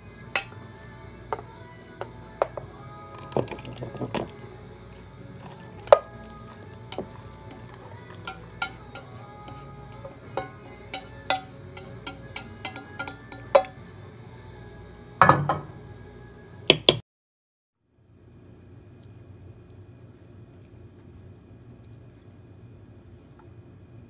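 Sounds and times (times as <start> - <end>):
chopsticks clinking on metal pot: 5.4 - 13.8.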